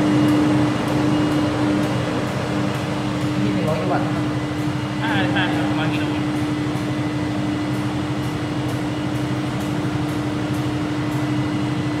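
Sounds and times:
generator machine hum: 0:00.0 - 0:12.0.

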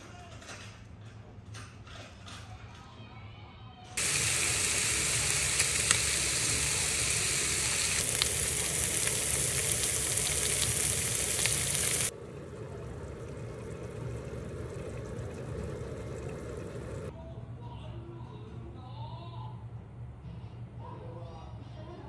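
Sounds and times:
meat sizzling in a frying pan: 0:04.0 - 0:12.1
soft simmering in a pot: 0:04.0 - 0:17.2.

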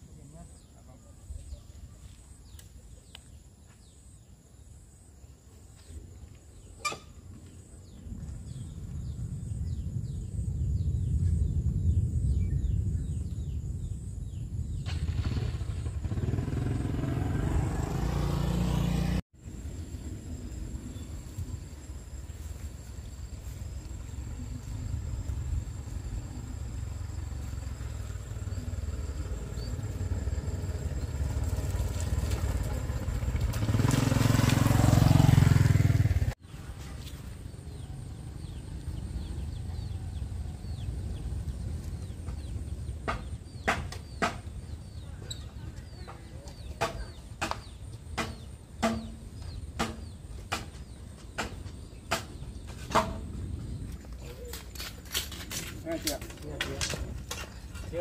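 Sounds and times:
motorbike engine approaching: 0:07.8 - 0:47.2
sharp knocks: 0:43.0 - 0:44.5, 0:46.8 - 0:53.2.

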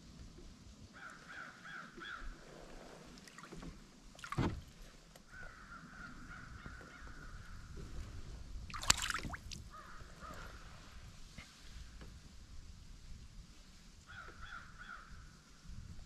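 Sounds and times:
fish splash: 0:08.7 - 0:09.6.

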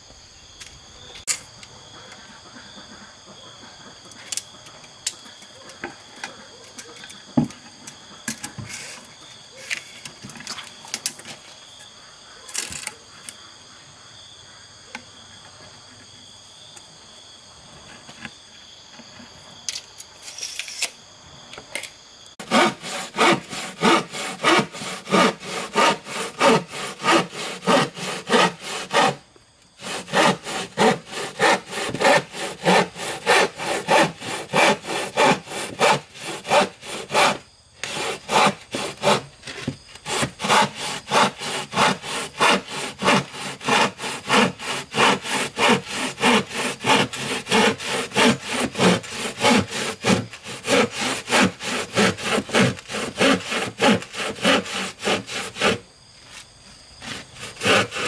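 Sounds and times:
hand saw cutting wood: 0:22.4 - 0:29.2, 0:29.8 - 0:55.8, 0:57.0 - 0:58.0.

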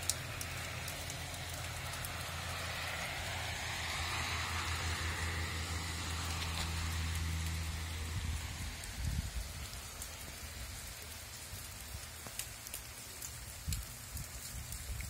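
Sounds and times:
drip ticks: 0:00.0 - 0:03.4, 0:10.9 - 0:15.0
low engine-like hum: 0:00.0 - 0:10.5
rain falling on leaves: 0:00.0 - 0:15.0.

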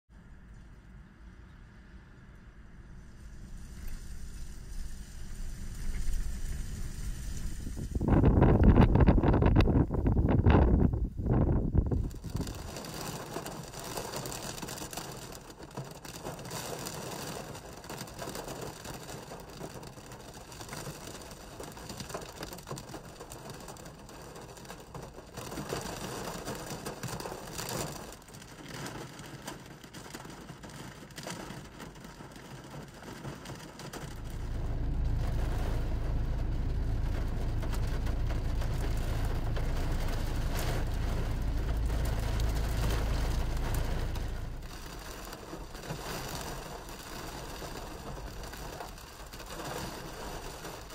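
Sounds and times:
loud steady low rumble: 0:02.9 - 0:12.8, 0:34.0 - 0:50.5
rain pattering on a car: 0:03.1 - 0:50.9.

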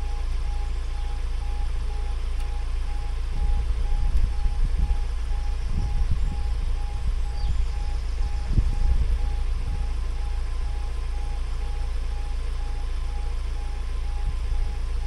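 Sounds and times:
level crossing electronic beeps: 0:00.0 - 0:14.7
low gusting rumble: 0:00.0 - 0:15.0.

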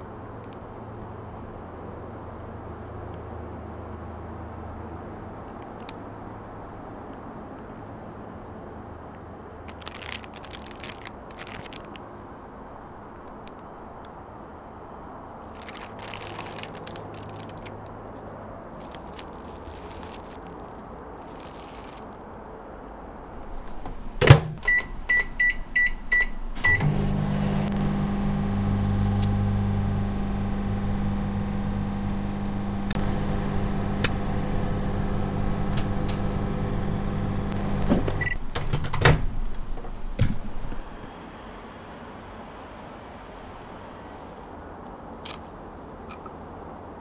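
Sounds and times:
microwave humming: 0:23.4 - 0:41.1
keypad beeps: 0:24.6 - 0:26.9, 0:37.8 - 0:38.4.

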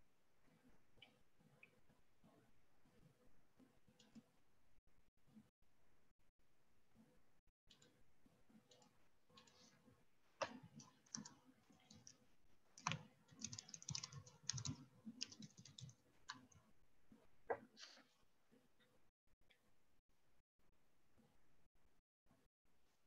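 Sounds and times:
typing on computer keyboard: 0:10.5 - 0:12.2, 0:12.8 - 0:16.6.

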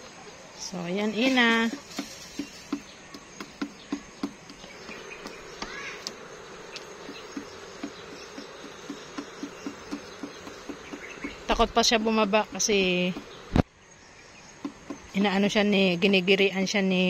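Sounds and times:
insects droning: 0:00.0 - 0:17.0
hen pecking on wooden board: 0:01.7 - 0:13.6, 0:14.6 - 0:15.2.

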